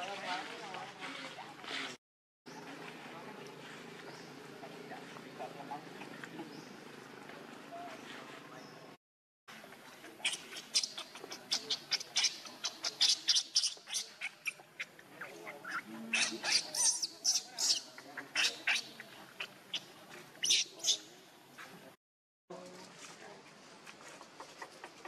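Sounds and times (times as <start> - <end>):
baby monkey squealing: 10.2 - 19.0, 19.7 - 21.1.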